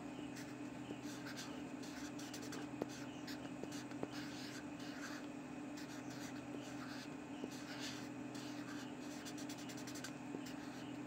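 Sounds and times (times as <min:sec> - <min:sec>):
steady low hum: 0:00.0 - 0:11.0
pencil scratching on paper: 0:00.4 - 0:05.2, 0:05.8 - 0:11.0.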